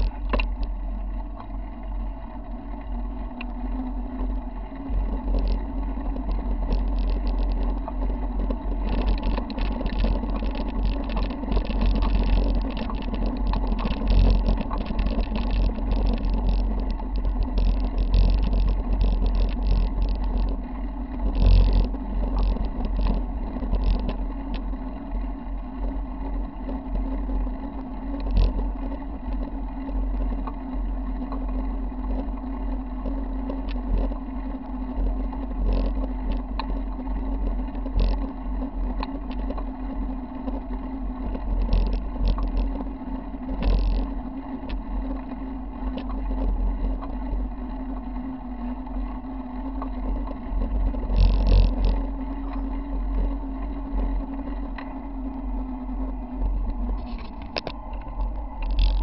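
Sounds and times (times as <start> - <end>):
bike rattles and knocks: 0.0 - 48.1, 49.2 - 55.0, 56.3 - 59.0
constant hum: 0.0 - 59.0
wind and road rumble: 0.0 - 59.0.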